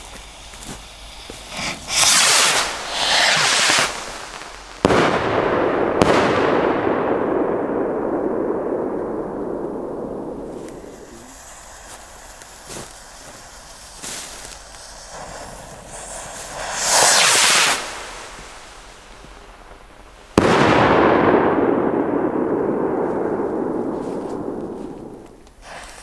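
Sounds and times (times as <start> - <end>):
firework hiss: 0.0 - 6.3, 10.0 - 20.6, 23.3 - 26.0
firework bang with rumble: 4.8 - 11.5, 20.4 - 25.7.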